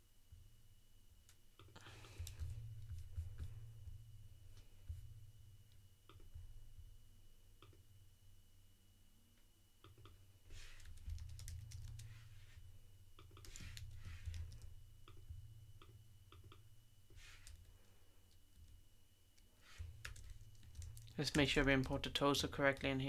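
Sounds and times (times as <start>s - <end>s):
faint keyboard typing: 1.2s - 3.6s, 9.8s - 12.6s, 13.2s - 18.8s, 19.4s - 23.0s.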